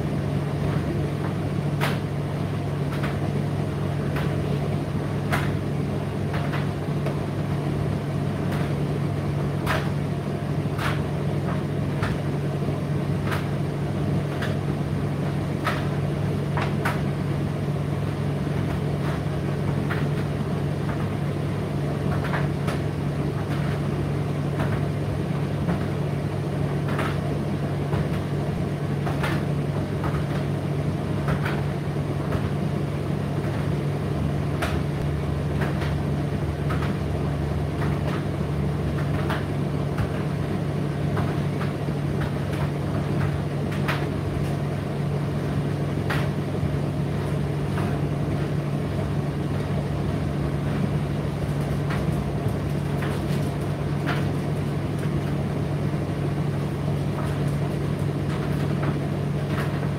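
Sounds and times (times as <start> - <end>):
tumble dryer humming: 0.0 - 59.9.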